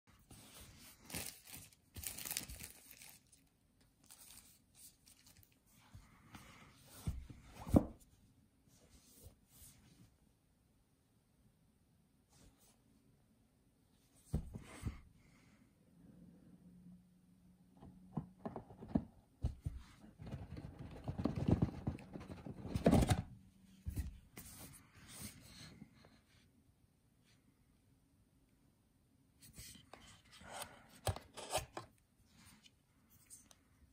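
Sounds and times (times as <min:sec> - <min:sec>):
plastic wrap tearing and crinkling: 0:01.1 - 0:03.4.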